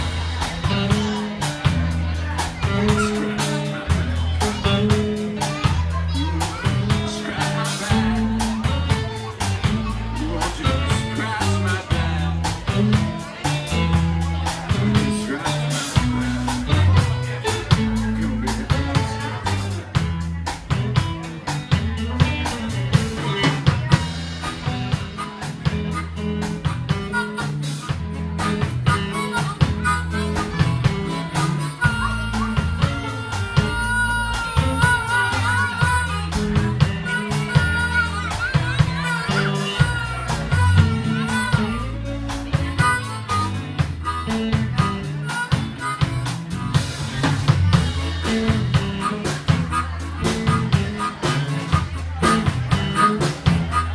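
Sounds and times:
bass line: 0.0s - 53.9s
drum kit: 0.0s - 53.9s
electric guitar: 0.0s - 53.9s
amplified harmonica solo: 21.2s - 53.9s.

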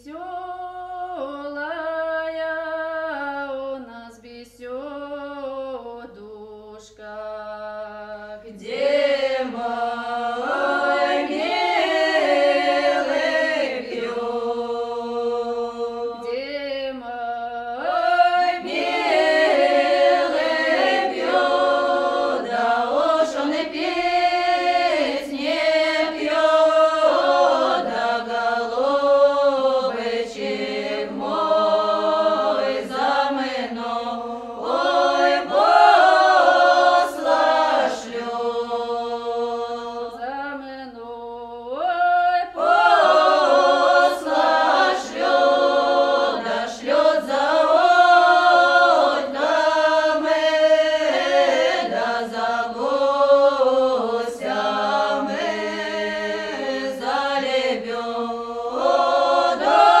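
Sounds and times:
choir singing unaccompanied: 7.6s - 60.0s.

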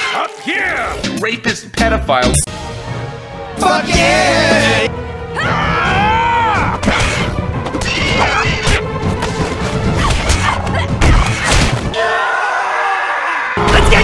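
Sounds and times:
action background music: 1.0s - 12.0s.

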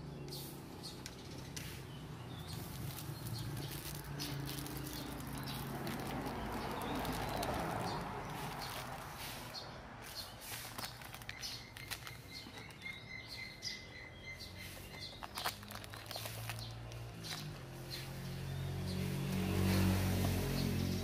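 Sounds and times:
plastic packaging crinkling: 2.4s - 13.0s, 15.0s - 17.8s.

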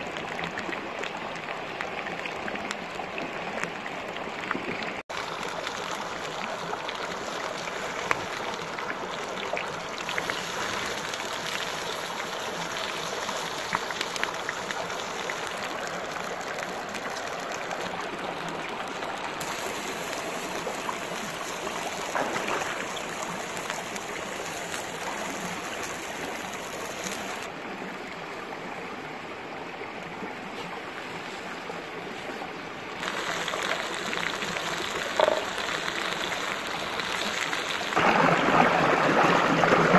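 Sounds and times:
stream running over rocks: 0.0s - 39.9s
wood fire crackling: 5.1s - 18.6s, 19.4s - 27.5s, 33.0s - 38.0s.

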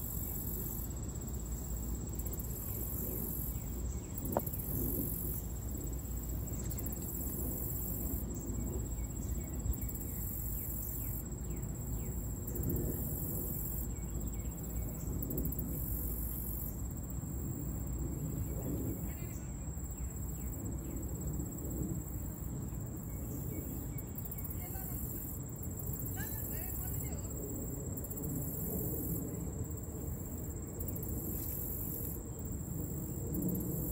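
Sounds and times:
insects trilling: 0.0s - 33.9s
steady low rumble: 0.8s - 10.2s.

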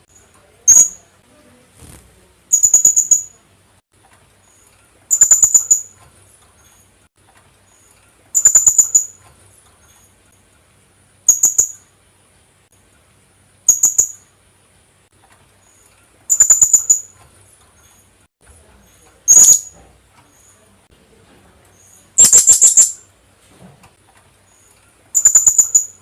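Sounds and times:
parrot calls: 22.2s - 23.0s, 25.2s - 26.0s.

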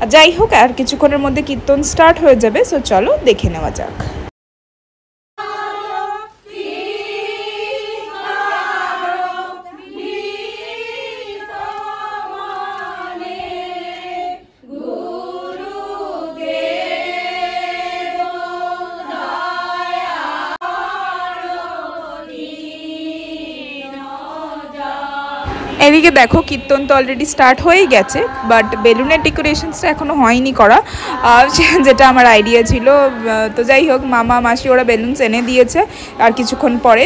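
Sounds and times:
women singing devotional song: 5.4s - 37.0s.

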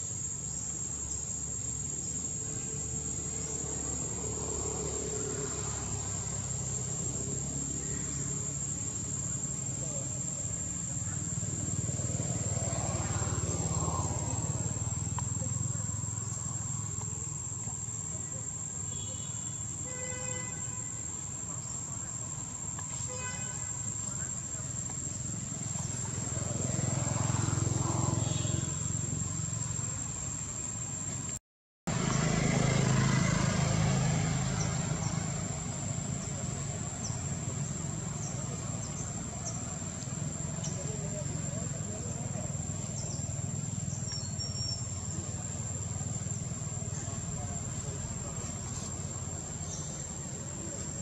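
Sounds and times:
engine rumble: 0.0s - 19.8s, 23.7s - 51.0s
faint voices: 2.2s - 19.7s, 32.6s - 51.0s.

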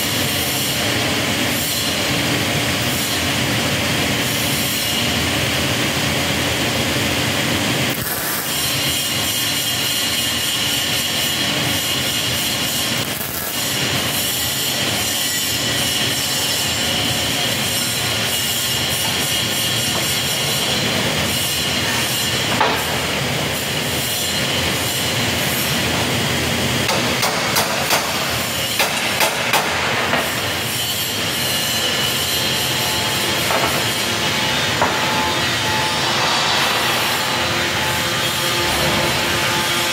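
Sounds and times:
high machine whine: 29.8s - 39.9s
low rumble: 34.9s - 39.4s.

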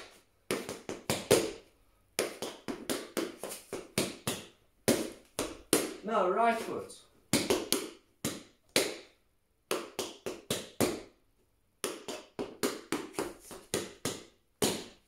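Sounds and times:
tap shoes striking hard floor: 0.0s - 1.6s, 2.2s - 6.0s, 11.8s - 15.0s.

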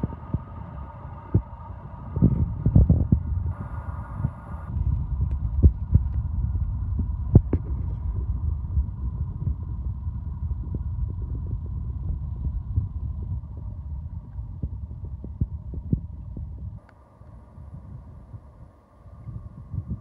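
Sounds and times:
freight train rumbling: 0.0s - 15.8s.

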